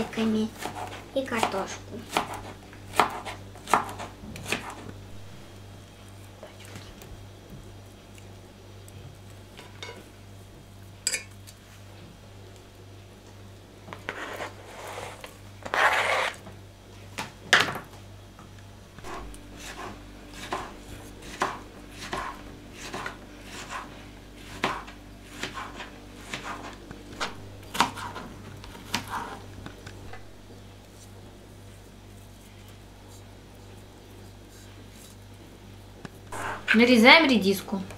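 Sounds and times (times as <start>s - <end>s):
low steady hum: 0.0s - 37.9s
utensils clinking on enamel pot: 11.0s - 11.3s.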